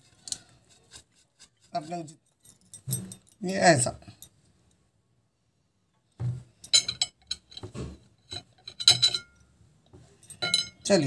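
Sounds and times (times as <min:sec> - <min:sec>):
ceramic plate clinking: 0:06.7 - 0:09.4, 0:10.3 - 0:10.9.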